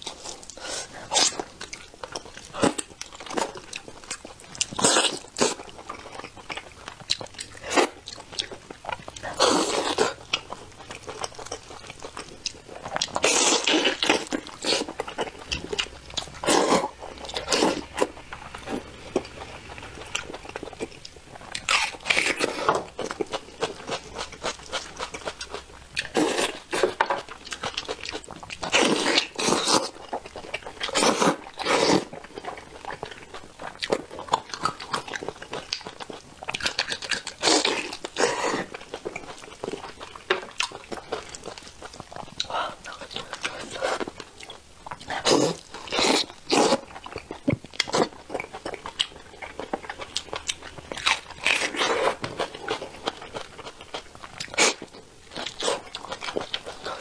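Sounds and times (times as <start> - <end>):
chewing and smacking: 0.0 - 57.0.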